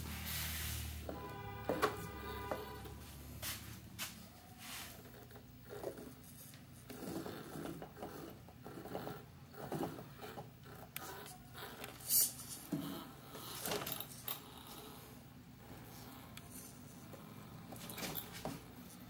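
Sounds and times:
faint mechanical whirring: 0.0s - 19.0s.

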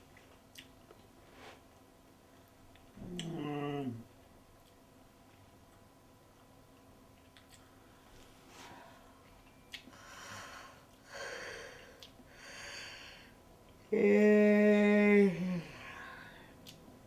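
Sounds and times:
man voicing long aah: 13.9s - 16.1s.

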